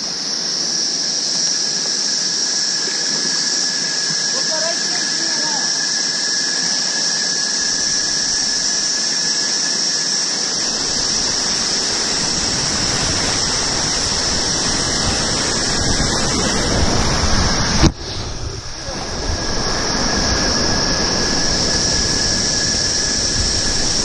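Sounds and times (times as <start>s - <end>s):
deep water churning: 2.9s - 24.0s
whitewater rushing: 6.5s - 24.0s.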